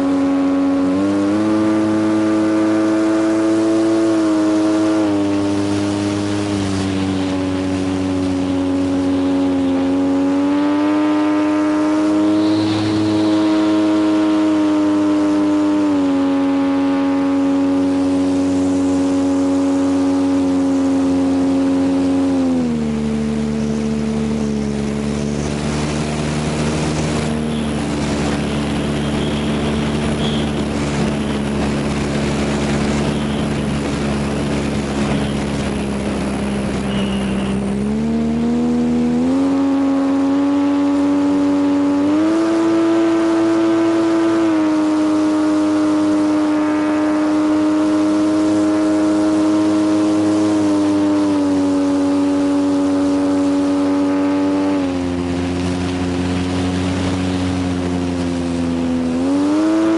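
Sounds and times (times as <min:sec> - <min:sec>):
electric model plane motor whine: 0:33.0 - 0:33.8.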